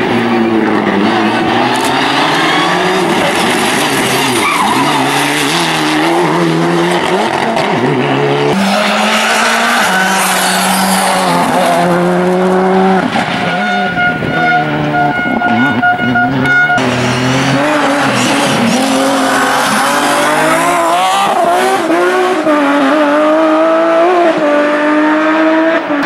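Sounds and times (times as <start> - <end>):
car engine revving hard: 0.0 - 26.0
tyres squealing: 1.7 - 5.6.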